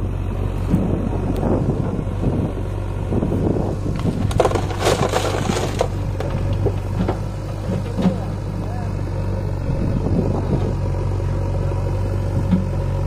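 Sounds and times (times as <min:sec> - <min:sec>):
diesel engines idling: 0:00.0 - 0:13.0
earth pouring from bucket: 0:04.3 - 0:06.0.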